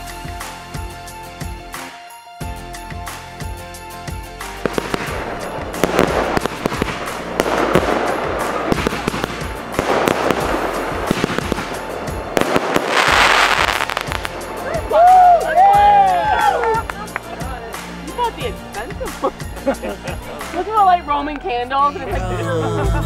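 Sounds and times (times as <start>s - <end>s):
background music: 0.0s - 23.0s
fireworks crackling pops: 4.5s - 18.4s.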